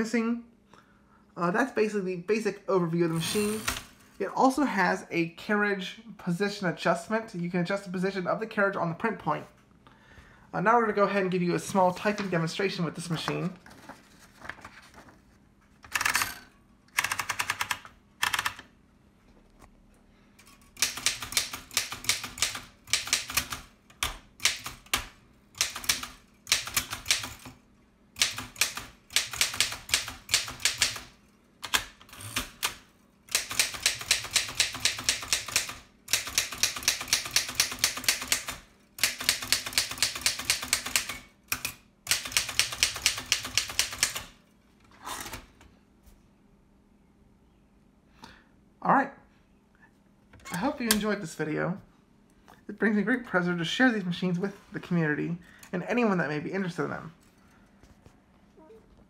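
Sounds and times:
typewriter key strikes: 33.3 - 44.3.

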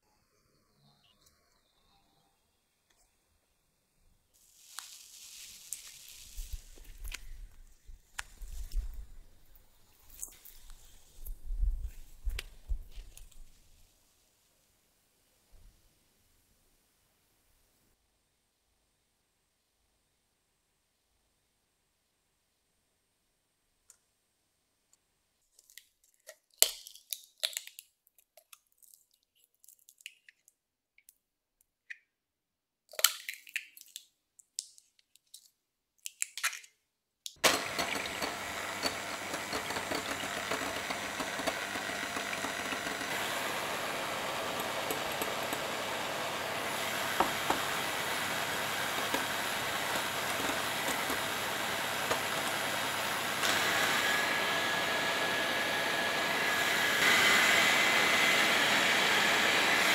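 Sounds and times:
electric hand mixer whirring: 37.4 - 59.9.

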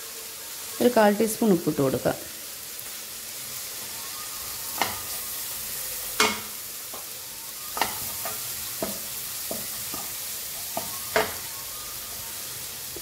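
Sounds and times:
vegetables sizzling: 0.0 - 13.0
spatula scraping vegetables in pan: 4.5 - 11.6
spatula knocking against pan: 6.2 - 7.1, 7.8 - 10.1.

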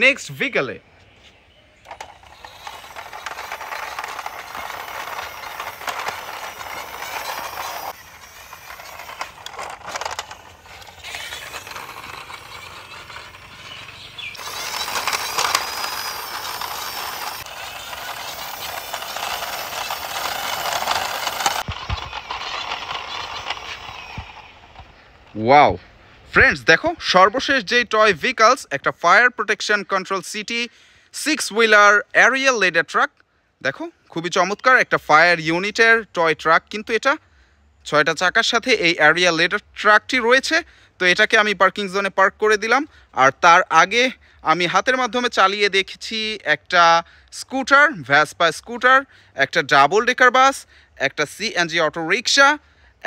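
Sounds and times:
sharp clicks: 1.8 - 25.0
plastic toy wheels rolling on concrete: 1.8 - 25.4.

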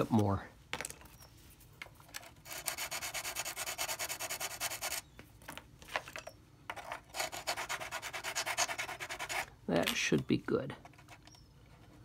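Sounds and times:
file rubbing on ceramic bricks: 2.4 - 5.1, 7.1 - 9.5.

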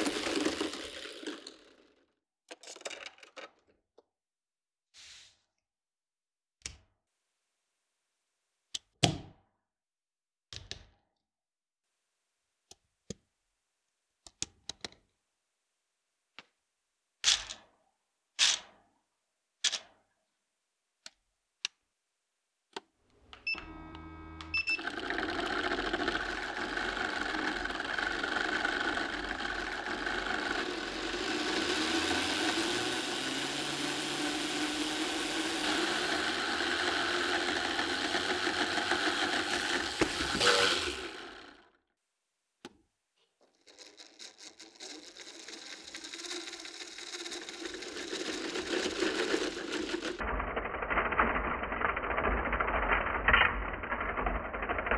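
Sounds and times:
motor-driven belt running: 0.0 - 1.8, 23.5 - 41.7, 43.6 - 54.9
plastic engine model clattering: 0.0 - 4.1, 24.7 - 32.8, 36.1 - 41.6, 43.4 - 54.9.

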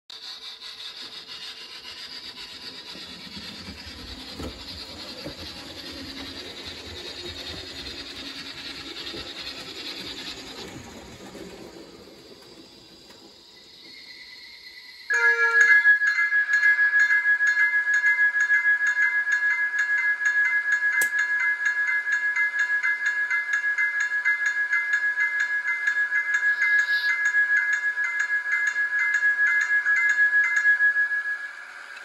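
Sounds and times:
rasping scraping sound effect: 0.1 - 12.0.

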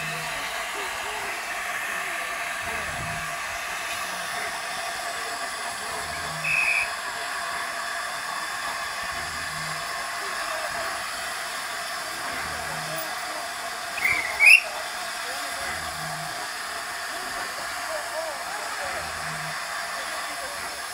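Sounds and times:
steam locomotive hissing: 0.0 - 20.9
high squeal: 6.3 - 7.0, 14.0 - 14.8.

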